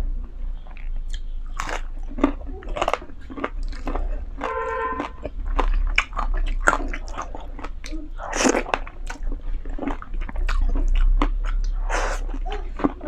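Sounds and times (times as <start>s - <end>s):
person chewing food: 0.0s - 13.0s.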